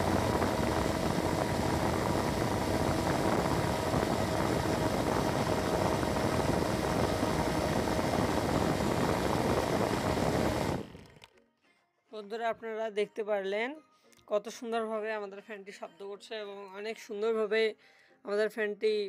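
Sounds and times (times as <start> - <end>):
faint motor hum: 0.0 - 11.3
fan blades whirring: 0.0 - 11.3.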